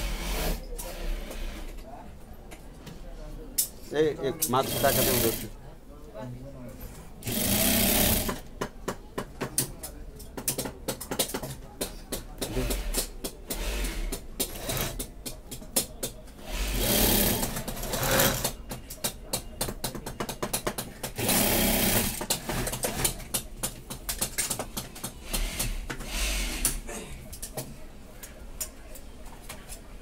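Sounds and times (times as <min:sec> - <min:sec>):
sewing machine stitching: 0:04.6 - 0:05.5, 0:07.2 - 0:08.4, 0:16.4 - 0:18.6, 0:21.1 - 0:23.2.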